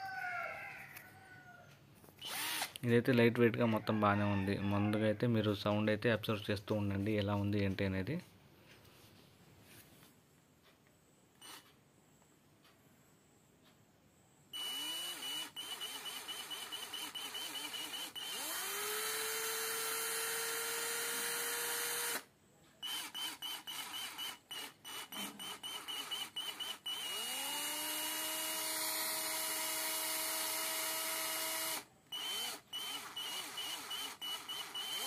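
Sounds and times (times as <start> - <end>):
cordless drill motor whining: 2.2 - 2.8, 11.4 - 11.6, 14.6 - 35.0.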